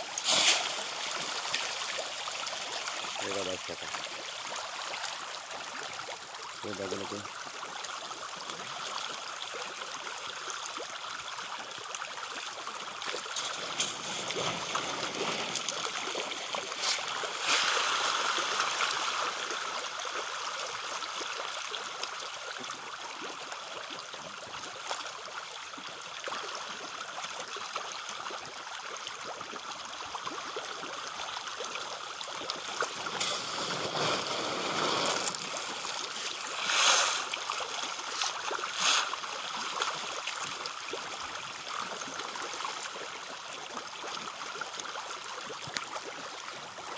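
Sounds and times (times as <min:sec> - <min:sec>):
fish splashing at water surface: 0:00.0 - 0:06.4, 0:13.0 - 0:20.2, 0:32.4 - 0:40.4.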